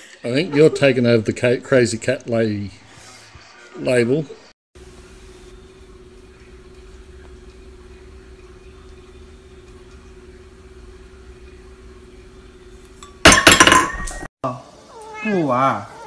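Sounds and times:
faint steady hum: 4.8s - 13.2s
glass clattering on stone countertop: 13.0s - 14.2s.

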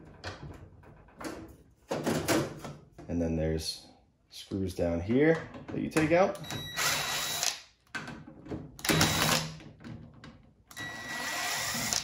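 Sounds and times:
cordless drill whining: 6.8s - 7.6s, 10.7s - 12.0s.

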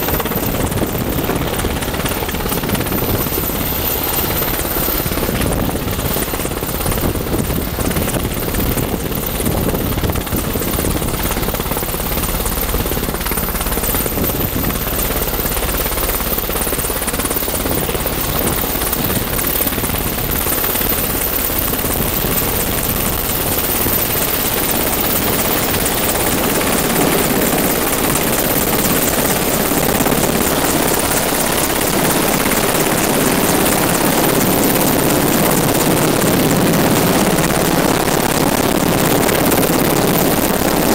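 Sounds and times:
helicopter rotor and turbine: 0.0s - 40.9s.

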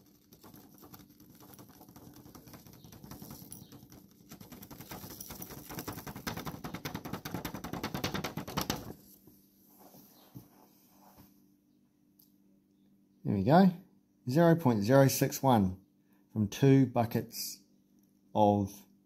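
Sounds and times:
paper rustling and fluttering: 0.0s - 9.2s.

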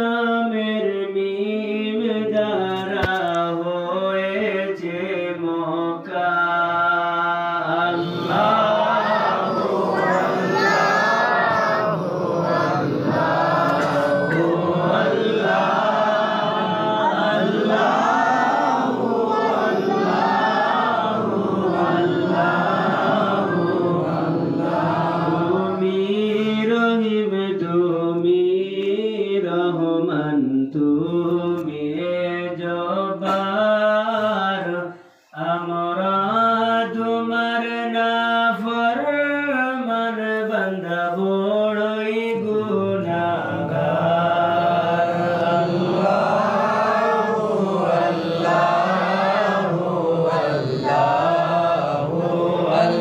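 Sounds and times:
group chanting: 6.5s - 27.0s, 39.8s - 53.0s
single voice chanting: 7.7s - 24.5s, 42.3s - 53.0s.

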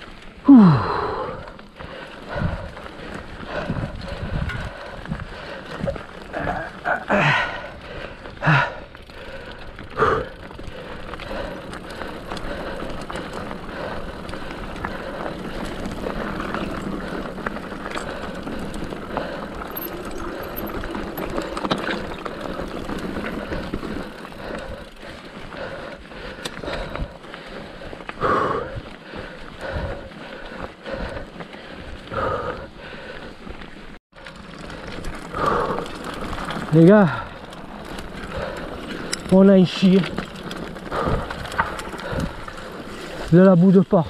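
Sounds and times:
bike tyre and drivetrain noise: 0.0s - 44.0s.

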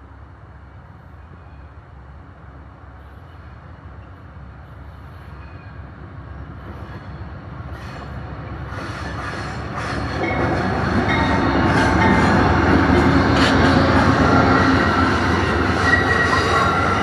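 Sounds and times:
train rumble: 0.0s - 17.0s
wheels hissing on rail: 2.5s - 17.0s.

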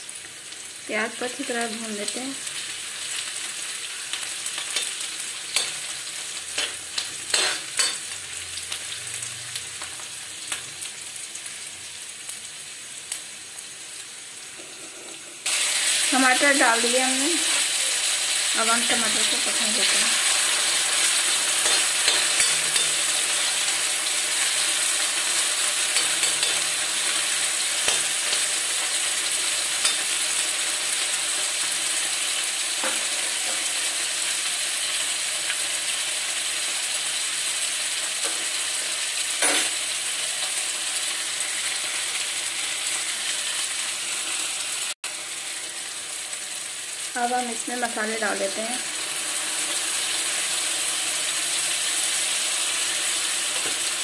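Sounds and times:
vegetables sizzling in hot oil: 0.0s - 54.0s
spatula scraping a pan: 20.9s - 23.4s, 25.9s - 28.8s.

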